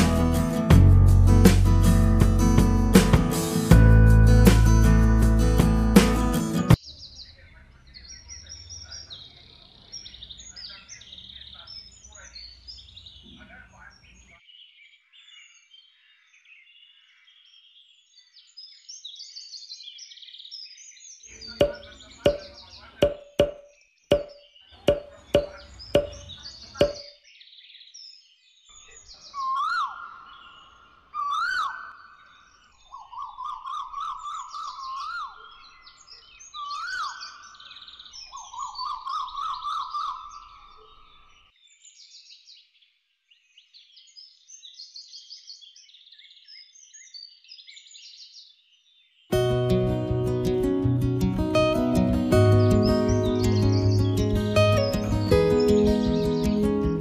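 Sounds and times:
birds chirping: 6.3 - 15.7, 21.1 - 42.7, 49.3 - 57.0
sharp knocking croaks: 21.5 - 27.1
loud warbling bird calls: 28.8 - 41.4.

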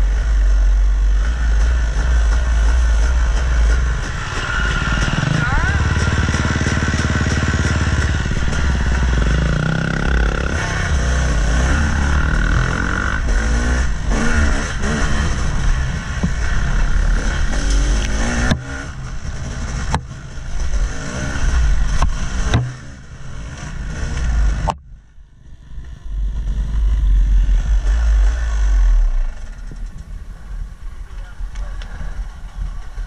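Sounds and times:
dirt bike engine revving: 0.0 - 24.7, 26.2 - 29.8
low engine rumble: 0.0 - 33.0
sharp knocks and clatter: 17.5 - 20.9, 21.8 - 22.8.

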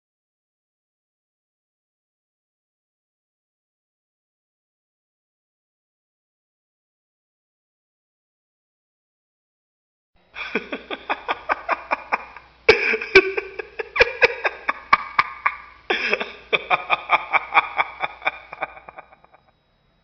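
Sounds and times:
person laughing hard: 10.4 - 19.4.

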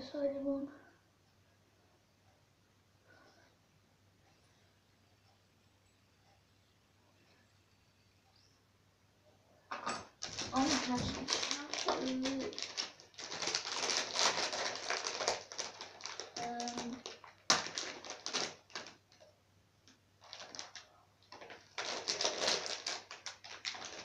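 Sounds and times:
plastic packaging crinkling: 10.1 - 19.4, 20.2 - 24.0.

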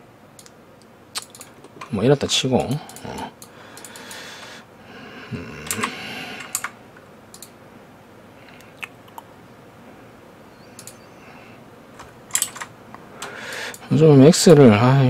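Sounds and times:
keyboard and mouse clicking: 1.2 - 2.0, 2.6 - 4.2, 5.6 - 7.6, 10.7 - 11.0.

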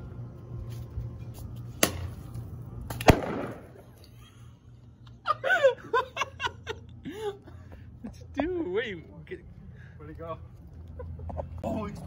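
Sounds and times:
sharp crack: 1.8 - 2.2, 2.8 - 3.9
bottle bursting bang: 3.1 - 3.8.

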